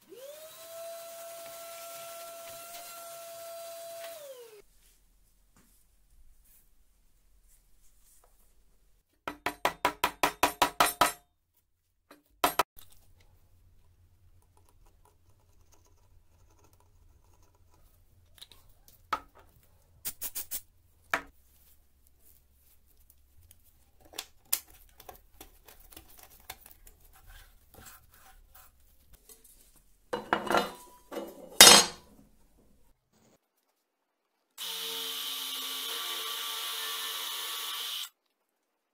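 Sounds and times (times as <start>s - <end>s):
wood and metal tools set down: 30.2s - 32.2s.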